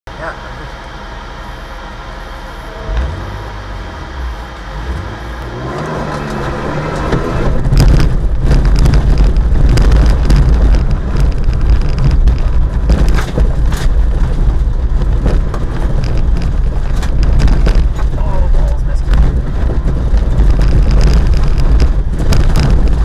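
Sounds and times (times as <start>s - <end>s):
car engine low drone: 0.1s - 23.0s
gravel clattering against car underside: 5.6s - 23.0s.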